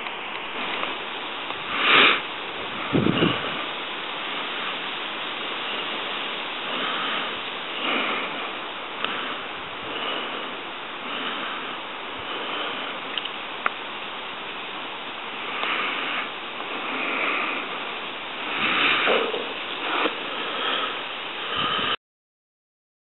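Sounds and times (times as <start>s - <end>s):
outdoor rushing noise by water: 0.0s - 22.0s.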